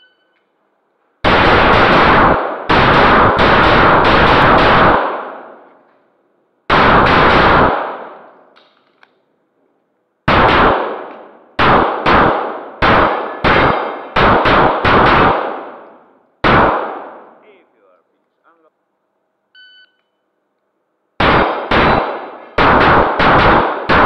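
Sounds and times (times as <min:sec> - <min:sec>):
pistol shots echoing indoors: 0:01.2 - 0:06.1, 0:06.7 - 0:09.1, 0:10.2 - 0:17.5, 0:21.2 - 0:24.0.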